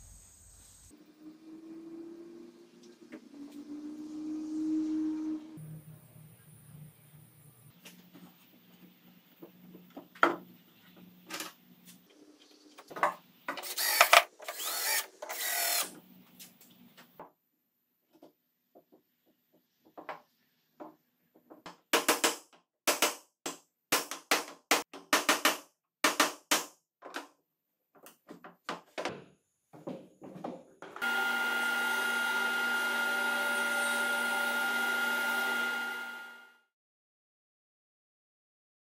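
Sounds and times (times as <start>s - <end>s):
cordless drill running: 13.6s - 15.9s, 31.0s - 36.6s.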